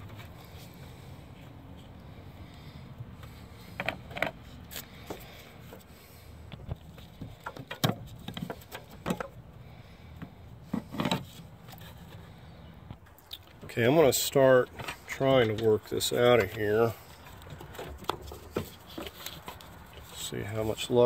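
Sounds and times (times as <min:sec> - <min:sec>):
metal clicks knocks and scrapes: 0:03.2 - 0:05.9, 0:06.5 - 0:09.4.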